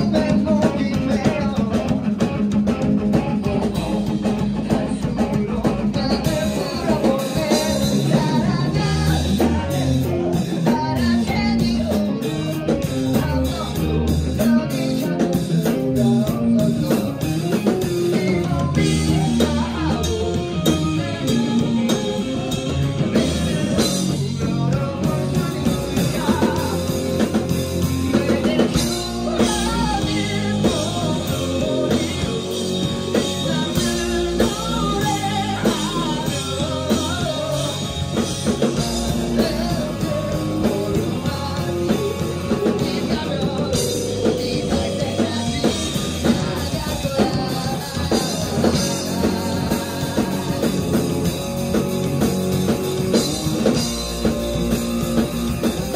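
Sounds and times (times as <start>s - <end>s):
distorted electric guitar: 0.0s - 55.9s
drum kit: 0.0s - 55.9s
electric bass: 0.0s - 55.9s
person singing: 0.0s - 55.9s.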